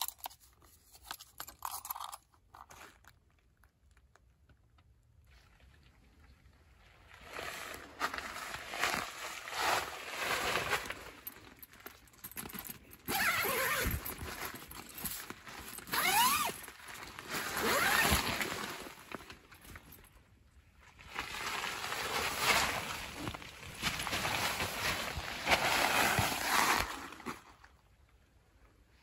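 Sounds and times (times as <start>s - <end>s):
tent zipper being pulled: 12.6s - 19.1s, 24.0s - 27.5s
fabric rustling: 21.4s - 27.7s.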